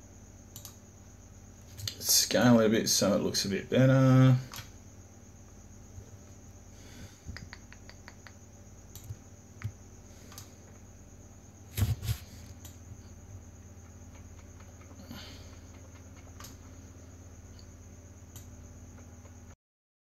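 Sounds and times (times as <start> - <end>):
faint computer hum: 0.0 - 19.6
computer mouse clicking: 0.5 - 0.8, 7.3 - 10.5, 13.8 - 16.7, 18.3 - 19.4.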